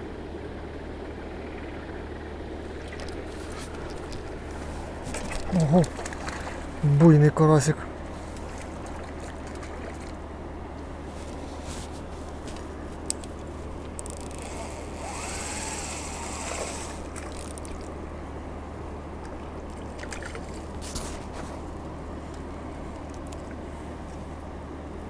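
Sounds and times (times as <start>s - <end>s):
water splashing and trickling: 2.6s - 10.4s, 15.6s - 18.1s, 19.1s - 21.8s.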